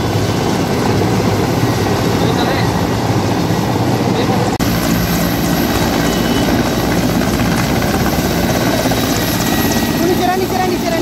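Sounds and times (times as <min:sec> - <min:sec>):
helicopter hovering: 0:00.0 - 0:11.0.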